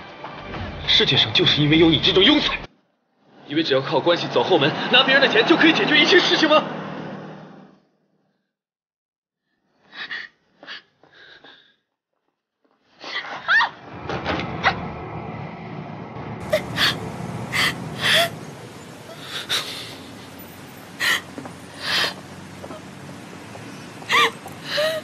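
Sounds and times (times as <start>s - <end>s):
low street hum: 13.3s - 25.0s
woman gasping: 16.4s - 18.4s, 19.1s - 20.1s, 21.0s - 22.2s, 24.1s - 25.0s.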